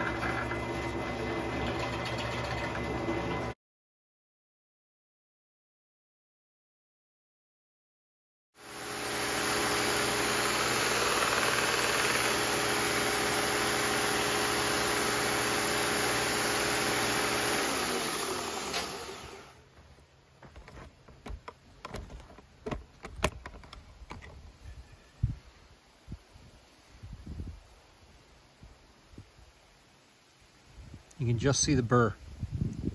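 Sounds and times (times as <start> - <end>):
belt grinder running: 8.6 - 19.6.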